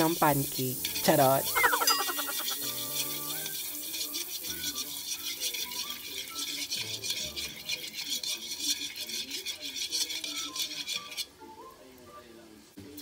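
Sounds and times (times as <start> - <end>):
background music: 0.0 - 6.0
metal spatula scraping a wok: 0.7 - 11.3.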